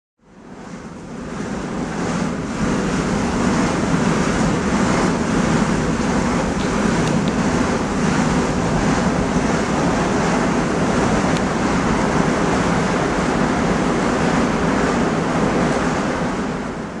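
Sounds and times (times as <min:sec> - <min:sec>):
flames burning with rushing sound: 0:00.4 - 0:17.0.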